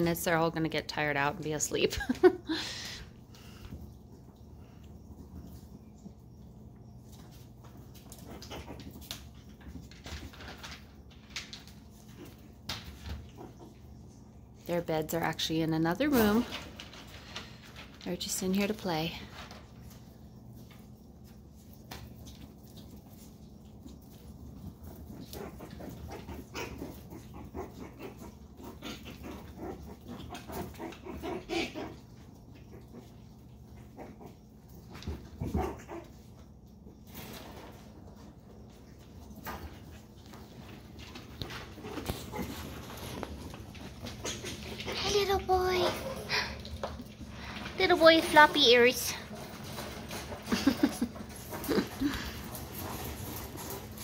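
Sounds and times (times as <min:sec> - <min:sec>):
puppies scuffling on tile: 0:00.0 - 0:54.0
puppies making high play noises: 0:22.4 - 0:36.4, 0:41.4 - 0:49.8.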